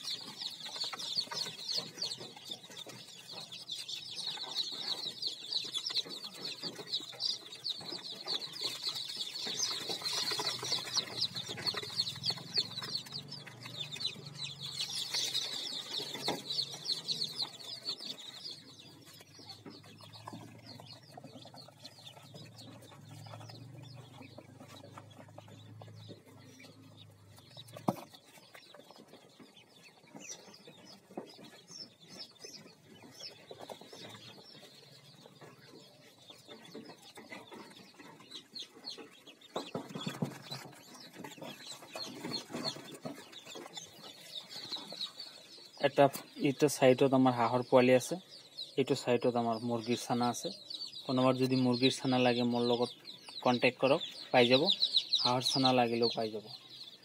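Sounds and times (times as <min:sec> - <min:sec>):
chicks peeping: 0:00.0 - 0:57.0.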